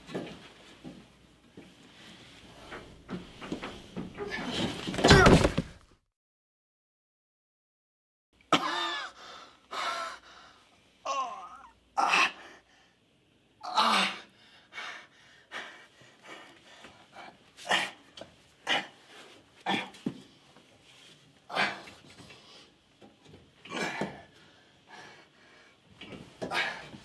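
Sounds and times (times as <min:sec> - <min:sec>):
breathing: 0:09.2 - 0:10.8, 0:12.4 - 0:13.1, 0:14.3 - 0:17.4, 0:24.3 - 0:25.9
man groaning: 0:11.1 - 0:12.4.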